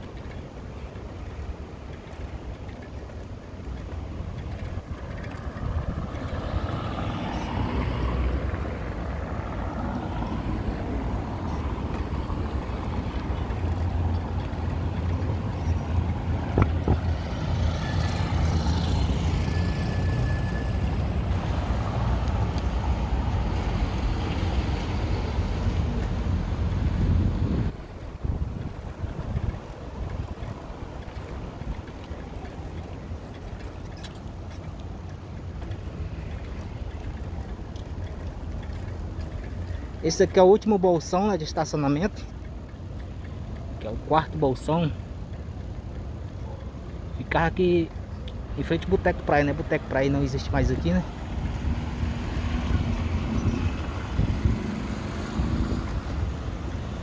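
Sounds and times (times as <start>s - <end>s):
wind buffeting microphone: 0.0s - 19.4s, 21.1s - 40.4s, 50.2s - 57.0s
road traffic noise: 0.0s - 57.0s.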